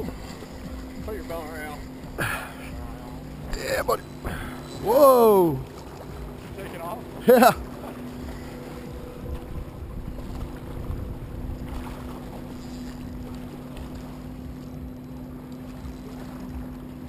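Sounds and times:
boat engine droning: 0.0 - 17.0
wind rumble on microphone: 7.6 - 17.0.

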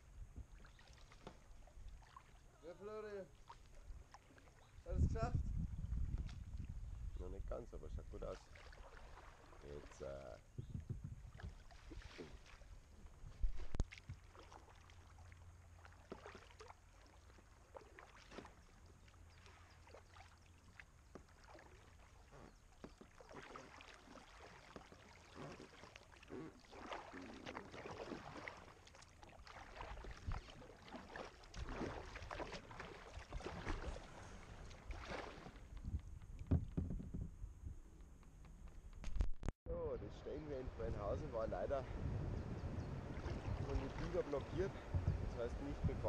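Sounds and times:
paddle splashing in water: 0.4 - 4.9, 8.3 - 10.4, 11.0 - 37.2, 43.0 - 46.0.

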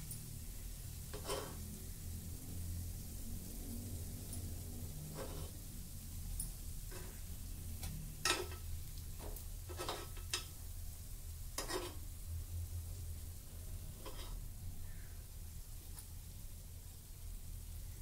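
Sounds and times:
spoon clinking against pan: 8.2 - 8.7.

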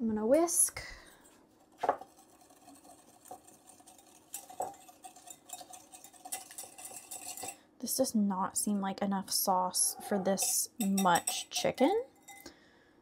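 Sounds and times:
whisk tapping bowl: 1.8 - 7.6
whisk clicking against bowl: 1.9 - 7.6.

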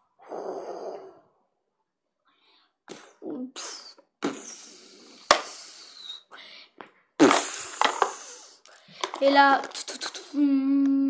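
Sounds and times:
child making explosion mouth sounds: 2.9 - 5.0.

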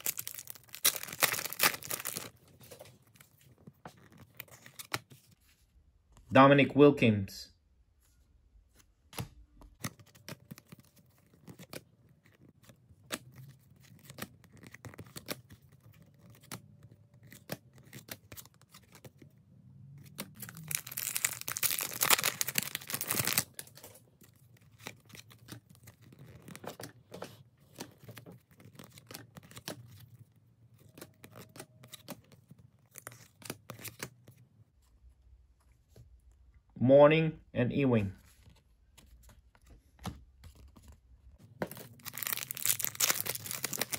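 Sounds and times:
foil wrapper tearing: 0.0 - 2.3, 20.3 - 23.7, 41.7 - 43.9.

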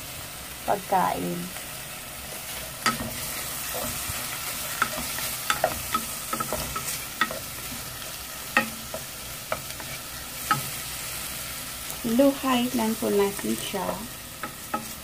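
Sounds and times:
food sizzling in a pan: 0.0 - 15.0
spatula scraping a pan: 2.3 - 11.4, 13.0 - 15.0.

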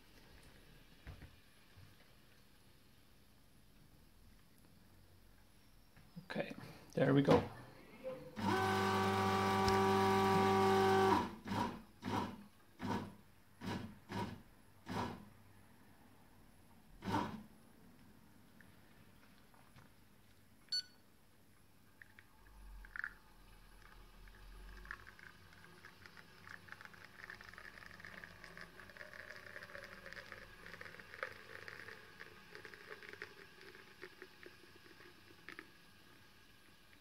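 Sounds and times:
espresso dripping into cups: 8.4 - 11.2, 22.0 - 37.0
espresso pump low rumble: 8.4 - 11.2
coffee scale beep: 20.7 - 21.0.

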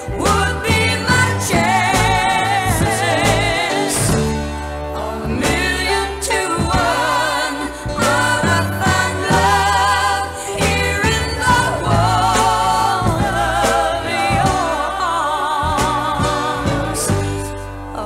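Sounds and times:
bass line: 0.0 - 18.0
soul vocals with vibrato: 0.0 - 18.0
drum hits: 0.1 - 4.7, 5.4 - 15.0.

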